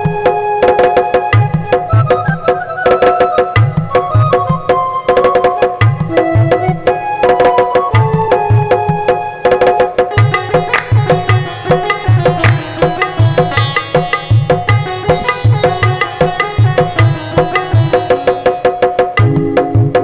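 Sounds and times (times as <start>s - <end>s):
tabla-style drum rhythm: 0.0s - 20.0s
electronic keyboard sitar-like melody: 10.1s - 20.0s.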